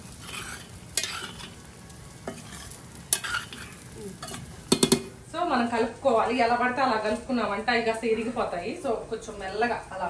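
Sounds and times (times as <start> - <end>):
curry sizzling in a pan: 0.0 - 10.0
spoon knocking against pan: 4.7 - 5.1.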